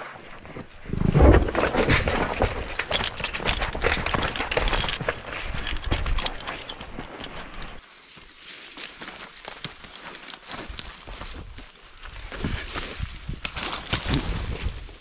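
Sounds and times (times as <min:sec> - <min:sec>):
brush and twigs crackling: 0:01.5 - 0:15.0
footsteps on leaf litter: 0:07.8 - 0:15.0.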